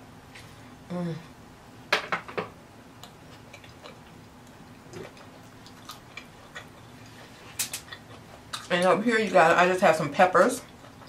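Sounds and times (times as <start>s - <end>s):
mouth chewing food: 3.0s - 9.4s, 10.6s - 11.0s.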